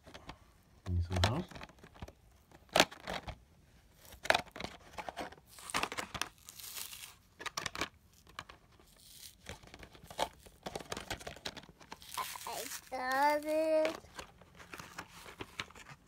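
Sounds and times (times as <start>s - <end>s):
plastic blister pack tearing open: 5.5s - 15.0s.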